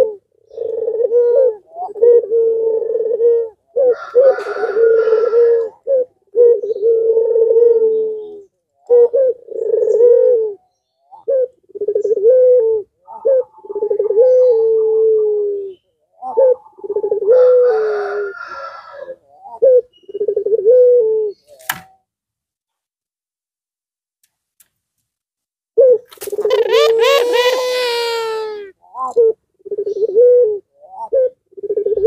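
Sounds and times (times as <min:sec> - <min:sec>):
dove cooing: 0:00.0 - 0:21.4, 0:25.8 - 0:32.0
sharp click: 0:21.6 - 0:21.9.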